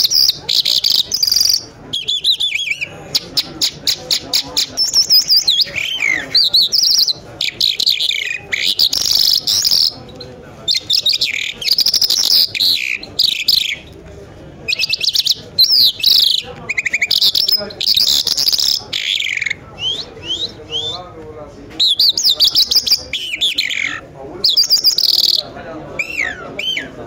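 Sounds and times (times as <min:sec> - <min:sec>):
lark singing: 0:00.0 - 0:10.0, 0:10.7 - 0:13.9, 0:14.7 - 0:21.0, 0:21.8 - 0:25.4.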